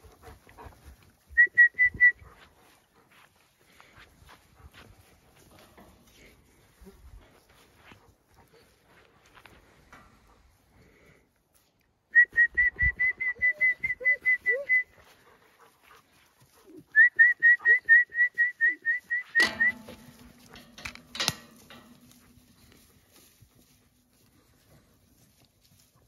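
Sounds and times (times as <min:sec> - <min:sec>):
low ringing hum: 0:19.4 - 0:25.0.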